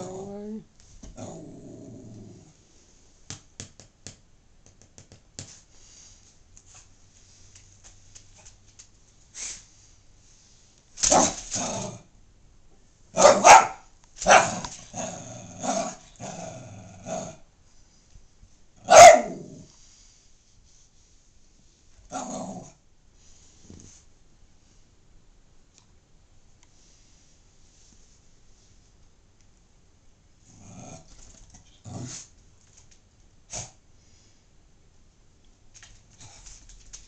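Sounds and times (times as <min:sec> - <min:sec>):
small dog barking: 0:13.2 - 0:14.7, 0:18.8 - 0:19.5.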